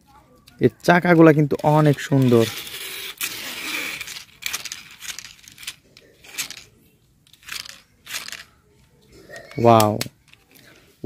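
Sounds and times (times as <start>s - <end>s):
plastic toy clicks and rattles: 0.4s - 10.8s
plastic toy rustling scrape: 1.1s - 6.7s, 7.3s - 8.6s.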